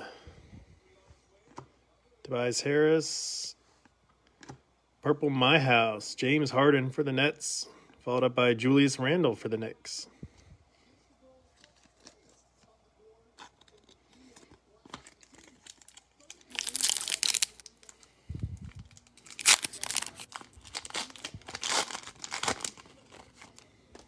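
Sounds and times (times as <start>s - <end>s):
foil wrappers tearing and crinkling: 13.3s - 24.0s.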